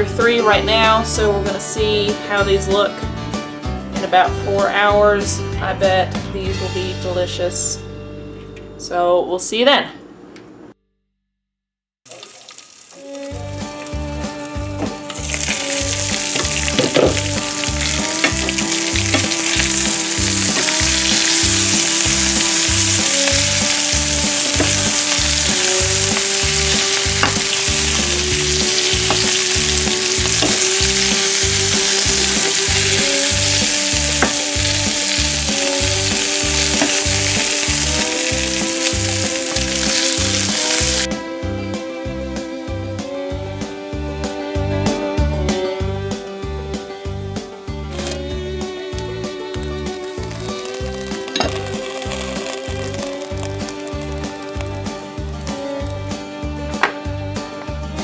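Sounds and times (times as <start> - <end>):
food sizzling in a frying pan: 12.1 - 14.5, 15.1 - 41.1, 49.5 - 55.9
background music with beat: 13.0 - 58.0.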